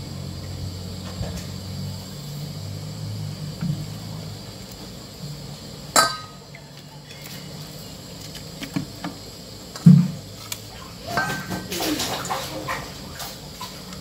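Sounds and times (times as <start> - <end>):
metallic clink of cookware: 6.0 - 6.4.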